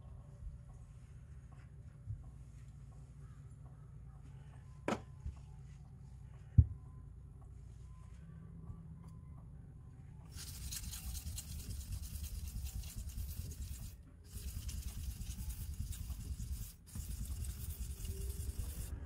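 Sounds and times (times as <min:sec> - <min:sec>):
knife scraping on whetstone: 0:10.3 - 0:18.9.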